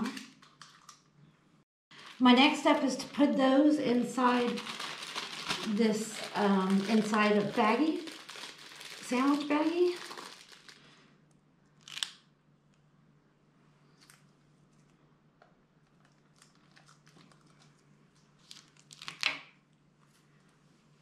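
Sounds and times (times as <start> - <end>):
plastic bag crinkling: 1.9 - 11.0, 11.8 - 12.1.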